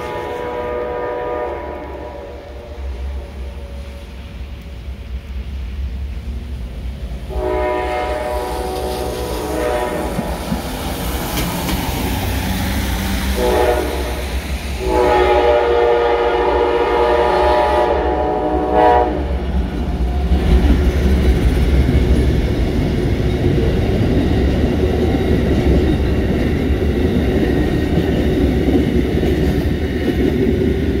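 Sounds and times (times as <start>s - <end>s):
train horn blasts: 0.0s - 4.3s, 7.3s - 10.4s, 13.3s - 19.4s
train wheels rumbling and clattering: 0.0s - 31.0s.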